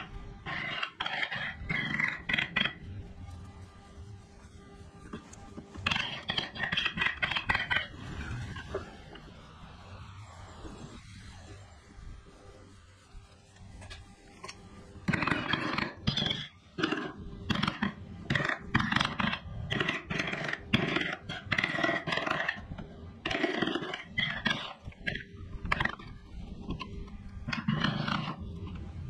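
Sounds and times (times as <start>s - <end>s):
carving tool scraping wood: 0.0s - 3.0s, 5.1s - 8.8s, 14.4s - 26.1s, 26.7s - 28.9s.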